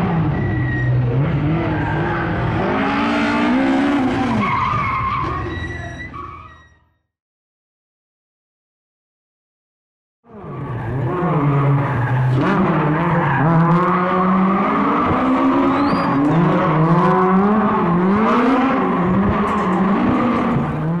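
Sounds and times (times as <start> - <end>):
racing engine revving: 0.0 - 4.5, 10.3 - 21.0
tyre squeal: 0.2 - 2.4, 3.9 - 7.0, 14.8 - 17.0.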